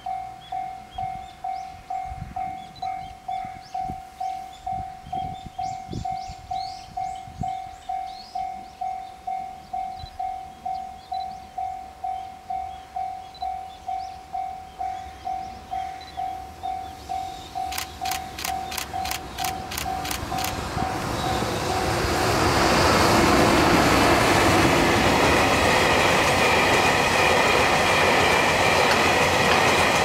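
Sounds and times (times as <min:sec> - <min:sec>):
level crossing warning bell ringing: 0:00.0 - 0:22.2.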